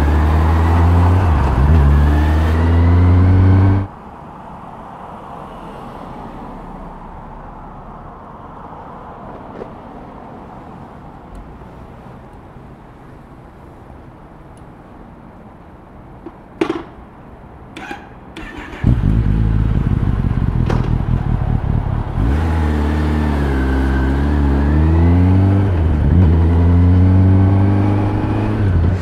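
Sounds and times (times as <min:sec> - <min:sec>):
motorcycle engine revving: 0:00.0 - 0:03.9, 0:17.8 - 0:29.0.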